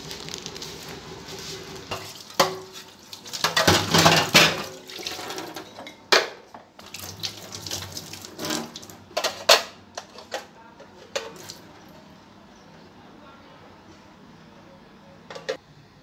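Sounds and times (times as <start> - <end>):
tap water running and splashing: 1.9 - 5.8, 6.8 - 9.2
metal utensils clanking: 1.9 - 6.1.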